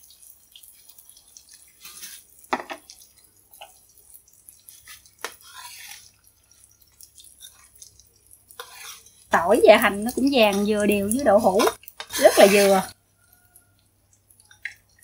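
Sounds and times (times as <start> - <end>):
oil sizzling: 0.0 - 15.0
metal spatula scraping frying pan: 4.8 - 6.1, 8.6 - 9.2, 10.4 - 12.9.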